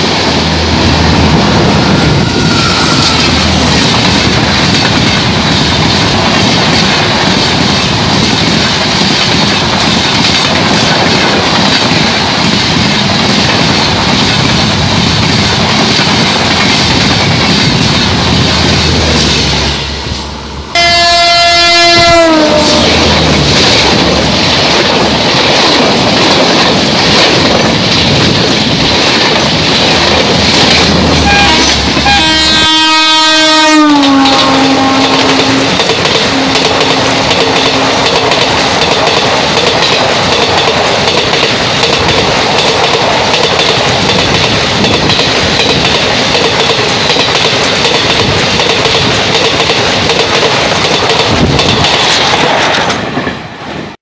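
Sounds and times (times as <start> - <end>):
train rumbling and clattering: 0.0 - 54.0
locomotive horn: 1.6 - 3.6, 19.8 - 23.1, 31.2 - 38.2.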